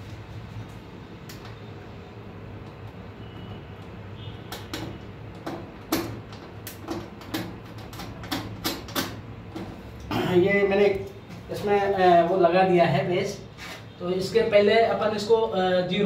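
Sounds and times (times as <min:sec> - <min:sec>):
sharp clicks and knocks on wires: 0:00.0 - 0:01.6, 0:02.6 - 0:10.2.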